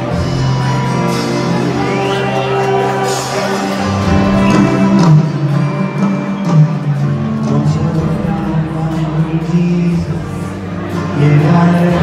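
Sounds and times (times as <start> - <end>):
live band with acoustic guitar: 0.0 - 12.0.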